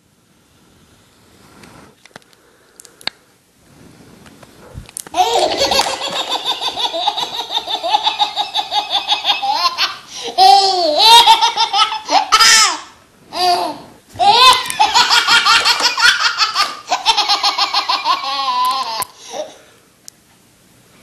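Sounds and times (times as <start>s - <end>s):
baby laughing: 5.1s - 19.6s.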